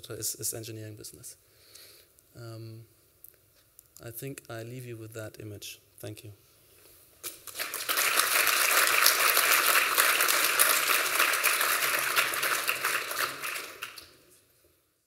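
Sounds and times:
audience applauding: 7.3 - 14.3.

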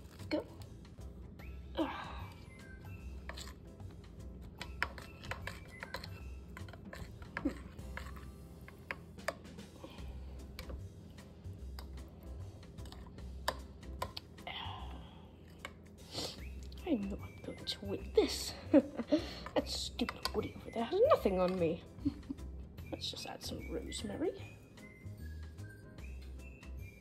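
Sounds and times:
metal spoon scraping ceramic bowl: 3.0 - 3.8, 4.6 - 9.0.

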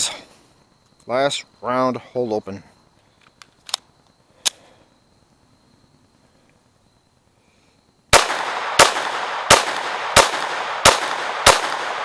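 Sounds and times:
pistol shots: 8.1 - 12.0.

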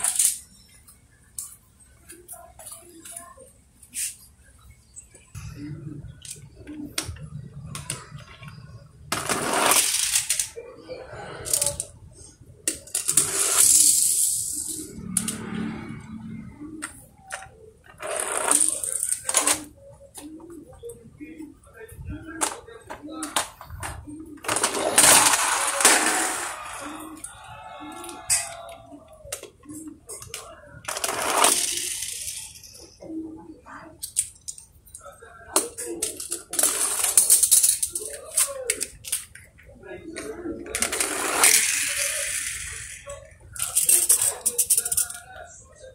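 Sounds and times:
toy car rolling on concrete: 0.0 - 1.6, 6.2 - 20.3, 22.3 - 33.1, 34.0 - 45.5
toy cars clicking and tapping: 0.0 - 1.6, 6.2 - 10.7, 11.3 - 15.9, 16.8 - 20.3, 22.4 - 33.1, 33.8 - 45.4.

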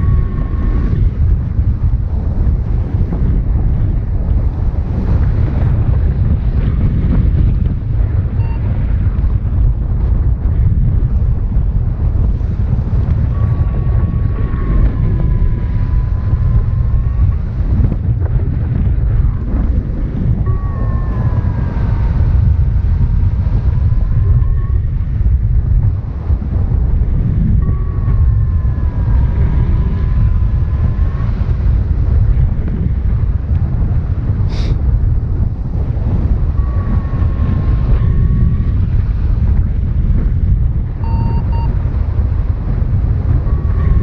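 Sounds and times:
faint thin tone: 0.0 - 1.0, 20.5 - 22.3, 41.0 - 41.7
variometer tone and beeps: 0.0 - 2.0, 8.3 - 8.9, 13.0 - 18.3, 19.1 - 32.4, 36.2 - 39.7, 40.9 - 41.9, 43.2 - 44.0
wind buffeting microphone: 0.0 - 44.0.

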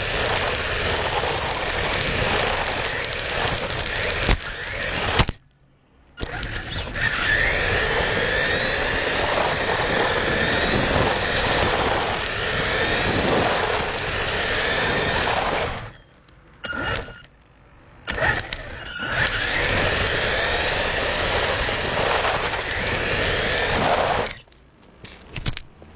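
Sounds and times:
toy car motor whining: 0.0 - 5.4, 6.2 - 17.4, 18.0 - 24.6
wheels rattling on paving stones: 0.0 - 5.4.

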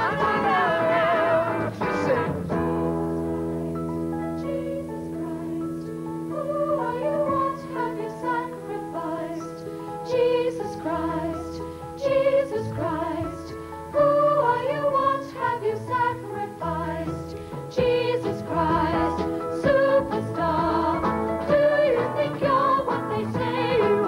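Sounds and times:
rock song sung live: 0.0 - 2.8
band playing sustained chords: 0.0 - 24.0.

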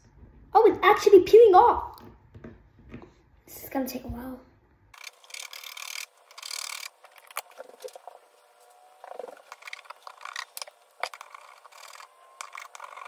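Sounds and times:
knife scraping plastic case: 9.1 - 13.0.

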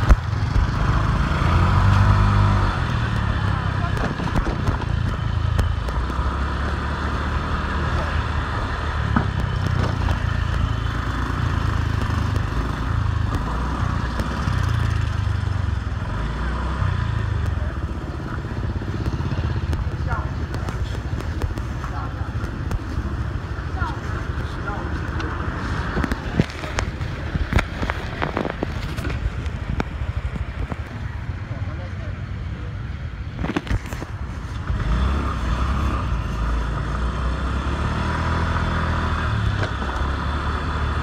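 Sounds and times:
motor scooter engine running: 0.0 - 32.1
street traffic: 0.0 - 41.0
wind and road noise: 0.0 - 41.0
sharp clicks and knocks: 2.8 - 6.3, 9.0 - 15.2, 17.2 - 31.0.

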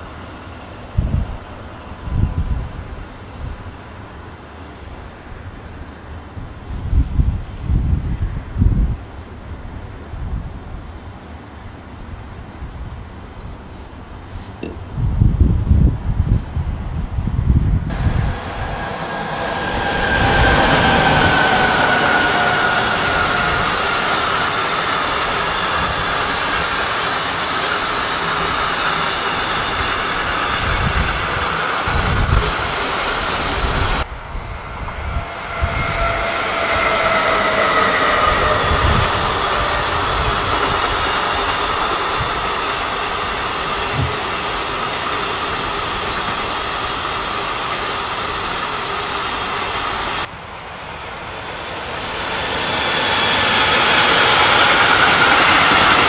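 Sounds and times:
electric locomotive approaching: 0.0 - 56.0
train wheels rolling on rails: 0.0 - 56.0.

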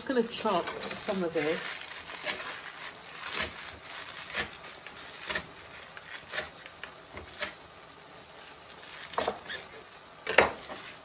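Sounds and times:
knife chopping on cutting board: 3.2 - 5.5.

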